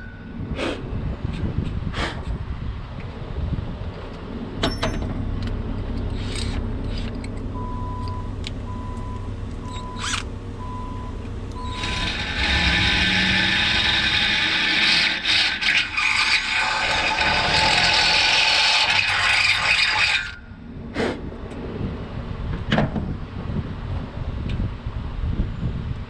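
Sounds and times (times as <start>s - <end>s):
cordless drill boring into metal: 9.7s - 10.3s, 11.6s - 20.4s.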